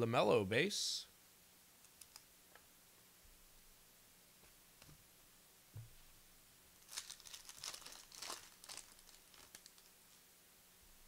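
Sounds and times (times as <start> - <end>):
light thump: 5.8 - 6.0
wrapper tearing and crinkling: 6.8 - 9.9.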